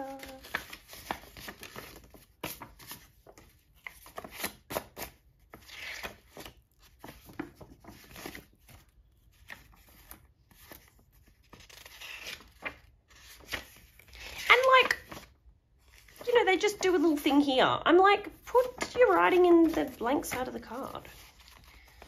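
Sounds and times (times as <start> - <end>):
paper cards rustling: 0.0 - 17.5, 18.2 - 22.0.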